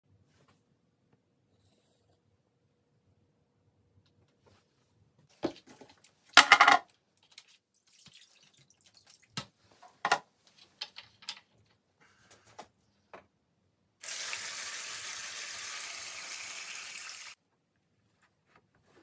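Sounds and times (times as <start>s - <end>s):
objects knocking on a tray: 6.4s - 6.8s.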